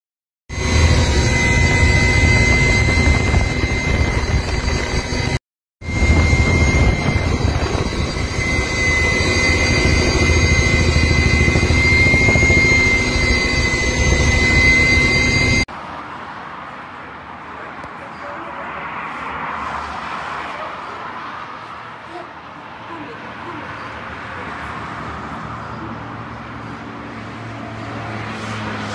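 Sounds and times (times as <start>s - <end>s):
helicopter turbine whine: 0.5s - 15.7s
steady outdoor noise: 0.5s - 28.9s.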